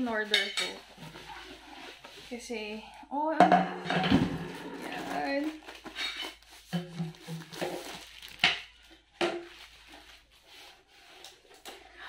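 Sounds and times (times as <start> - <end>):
paper rustling: 4.7 - 8.9.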